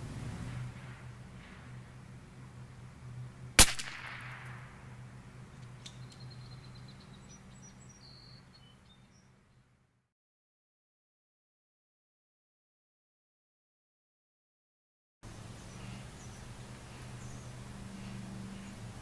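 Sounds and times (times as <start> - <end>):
rifle shot: 3.6 - 4.8
faint bird chirps: 5.9 - 9.3.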